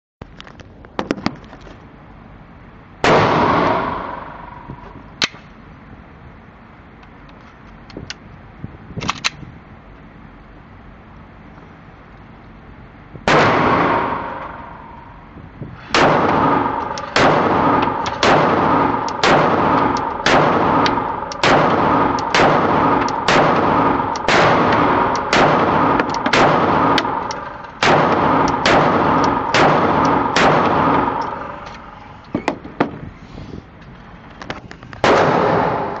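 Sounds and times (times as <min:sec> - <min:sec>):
pistol shots echoing: 0:03.0 - 0:04.8, 0:13.3 - 0:15.2, 0:15.9 - 0:32.0, 0:35.0 - 0:36.0.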